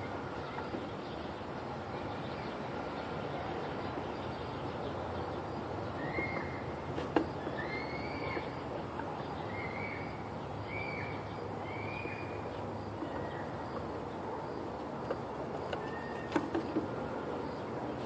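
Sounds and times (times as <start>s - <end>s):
outdoor background hum: 0.0s - 18.0s
bird calling: 5.8s - 14.4s, 15.6s - 18.0s.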